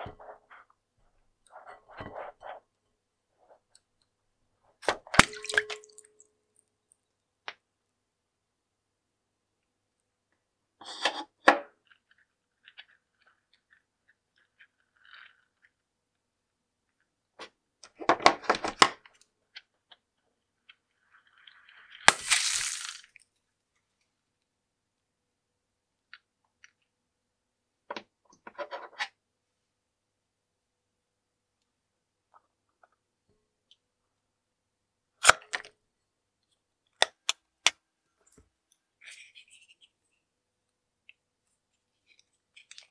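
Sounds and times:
rustling: 20.6 - 23.2
balloon popping: 22.1 - 23.2
clicks and rubs: 36.4 - 42.9.

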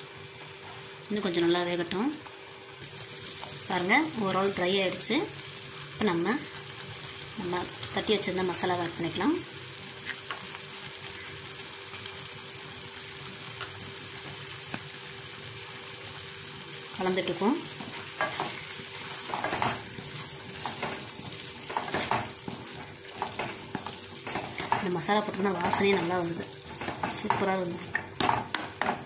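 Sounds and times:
food sizzling in a pan: 0.0 - 29.0
spatula scraping a pan: 17.7 - 29.0.

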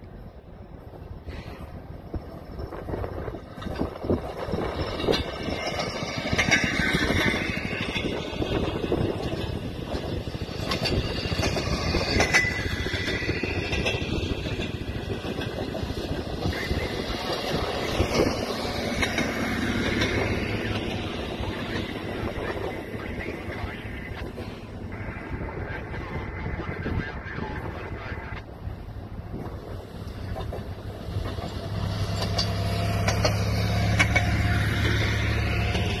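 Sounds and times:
steel wheels rolling on rails: 0.0 - 36.0
high metallic squeal: 11.6 - 14.3.

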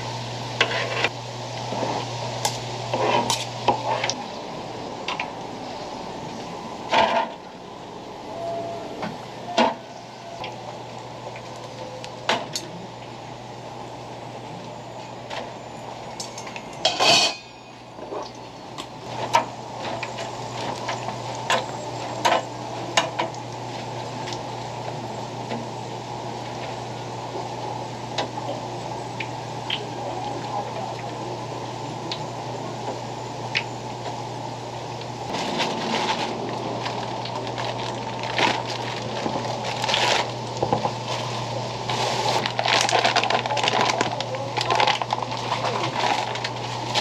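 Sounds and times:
oil frying sizzle: 0.0 - 6.1, 17.9 - 42.8
metal tongs clinking on trays: 16.1 - 17.6.

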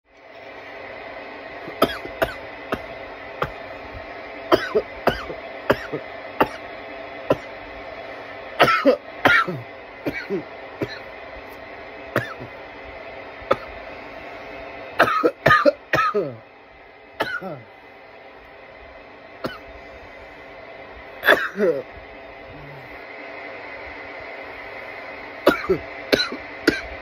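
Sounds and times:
steady background hum: 0.1 - 27.0
man coughing: 1.8 - 3.6, 4.5 - 6.6, 8.6 - 11.1, 12.2 - 12.5, 15.0 - 16.4, 17.2 - 17.7, 19.4 - 19.7, 21.2 - 21.9, 25.5 - 27.0.

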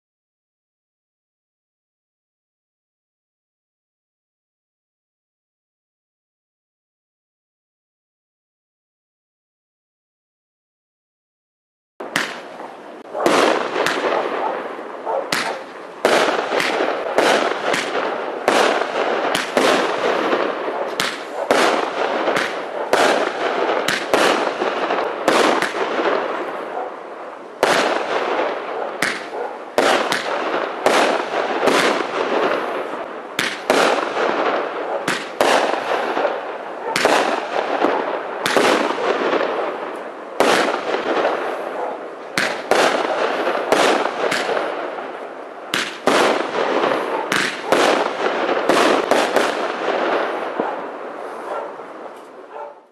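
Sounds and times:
fireworks crackling: 12.0 - 52.4
fireworks sharp reports: 12.0 - 52.8.

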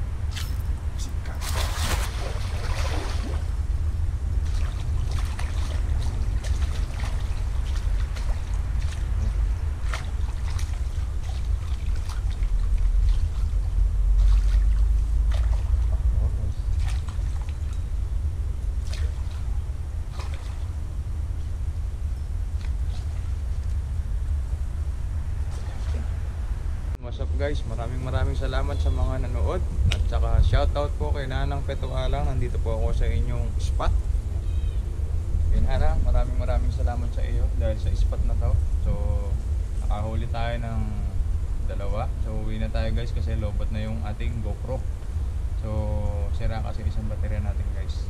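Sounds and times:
water sloshing and trickling: 0.0 - 26.8
low rumble: 0.0 - 48.0.

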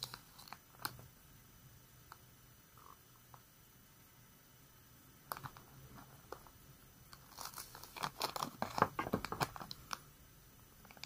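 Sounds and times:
plastic packaging crinkling: 7.2 - 10.0.

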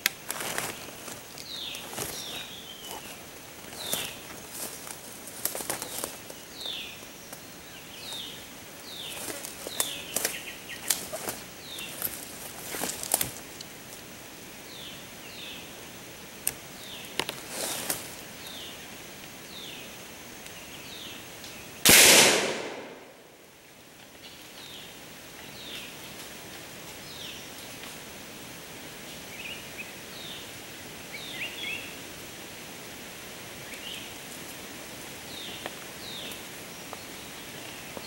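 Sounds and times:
bird calling: 0.0 - 4.7
footsteps on dry leaves: 0.1 - 6.8, 8.9 - 13.5, 17.4 - 18.2
loud sharp bang: 21.9 - 23.2.

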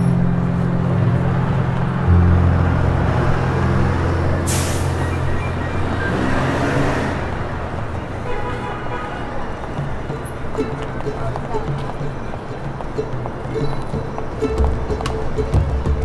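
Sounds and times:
deep bass notes: 0.0 - 7.4, 14.4 - 16.0.

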